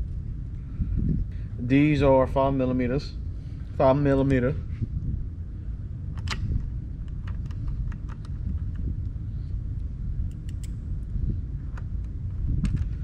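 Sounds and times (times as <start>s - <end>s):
low rumble: 0.0s - 13.0s.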